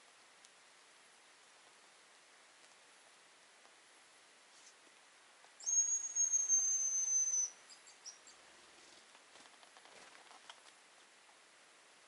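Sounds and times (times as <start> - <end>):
bird long high whistle: 5.6 - 8.2.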